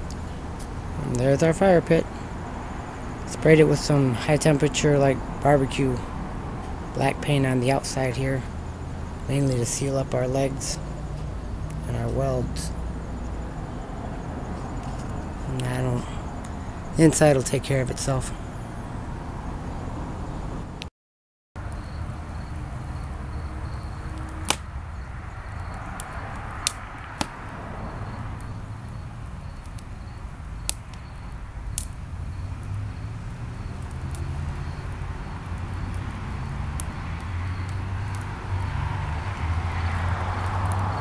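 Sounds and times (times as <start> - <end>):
fire low rumble: 0.0 - 20.8, 21.6 - 41.0
wood fire pops and crackles: 24.2 - 27.6, 28.4 - 41.0.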